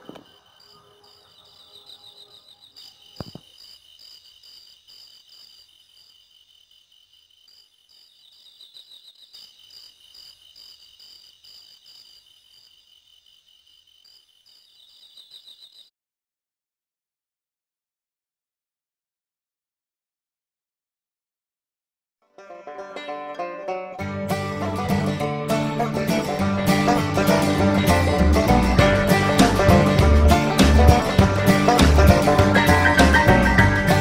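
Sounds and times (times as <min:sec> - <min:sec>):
crickets chirping: 0:00.0 - 0:15.9.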